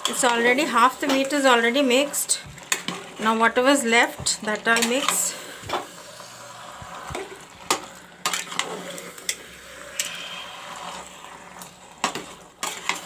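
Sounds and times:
low sizzle: 0:00.0 - 0:13.0
spoon stirring thick stew: 0:00.0 - 0:13.0.

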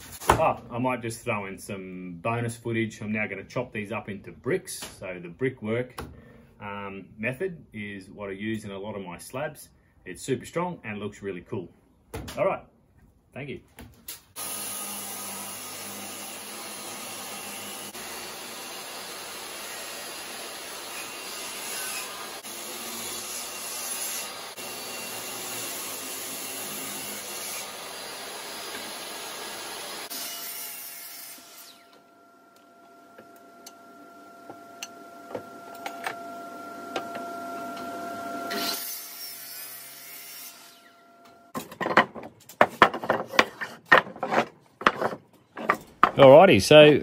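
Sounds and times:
table saw cutting wood: 0:14.3 - 0:32.2, 0:33.1 - 0:41.6
wooden blocks clattering: 0:41.6 - 0:46.2.

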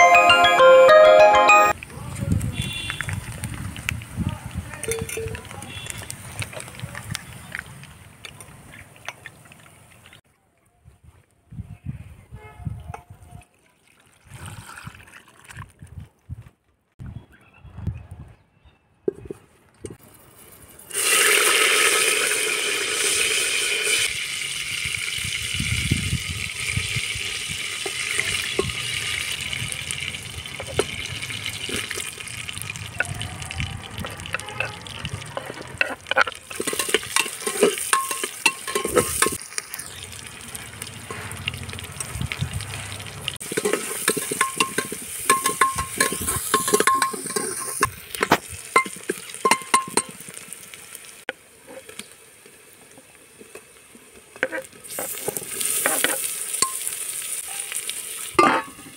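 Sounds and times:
onions sizzling in hot oil: 0:20.2 - 0:58.9
metal ladle scraping pot: 0:33.9 - 0:39.4, 0:43.4 - 0:50.1, 0:58.4 - 0:58.9.

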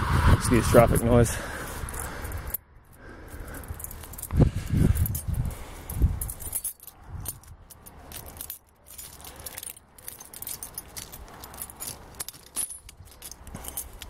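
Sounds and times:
keys jangling against padlock: 0:01.4 - 0:14.0.

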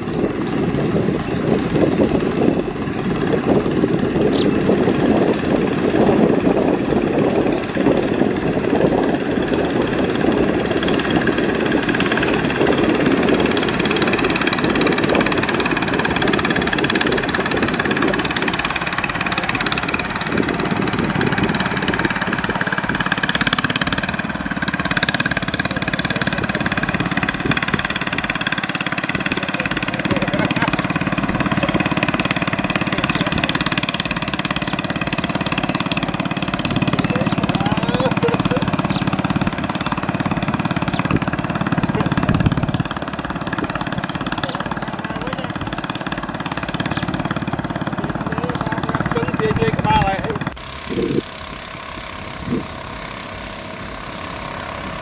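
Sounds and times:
boat engine running: 0:00.0 - 0:55.0.

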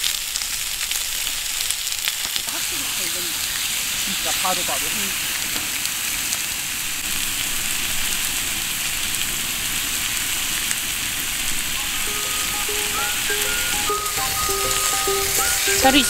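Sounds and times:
pork sizzling in a frying pan: 0:00.0 - 0:16.0
soft background music: 0:11.8 - 0:16.0.

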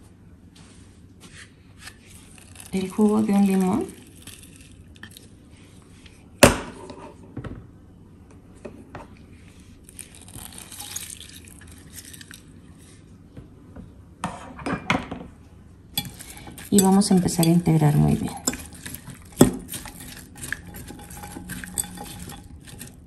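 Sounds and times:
kitchenware clinking on glass dish: 0:16.0 - 0:23.0.

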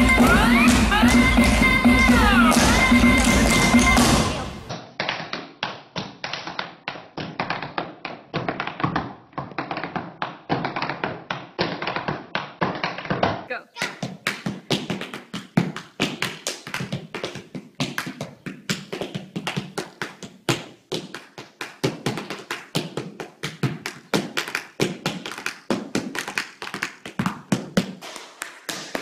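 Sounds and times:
tap shoes tapping on floor: 0:00.0 - 0:29.0.

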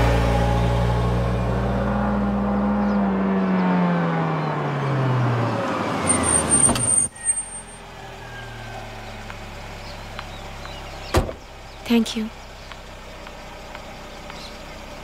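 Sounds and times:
jeep engine slowing down: 0:00.0 - 0:06.5, 0:07.1 - 0:15.0
thin high squeal: 0:06.1 - 0:07.8.

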